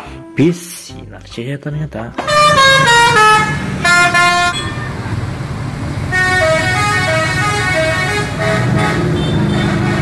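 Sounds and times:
musical bus horn melody: 2.2 - 5.2, 6.0 - 10.0
bus engine rumble: 2.2 - 10.0
street traffic: 2.2 - 10.0.

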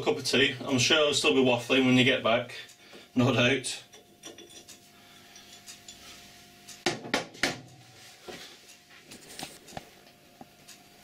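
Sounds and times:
metallic clinks of tools and parts: 3.9 - 6.1.

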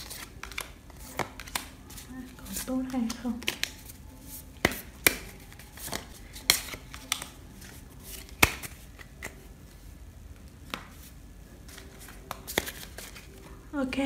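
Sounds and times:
cards clicking and tapping: 0.0 - 9.4, 10.3 - 13.4.

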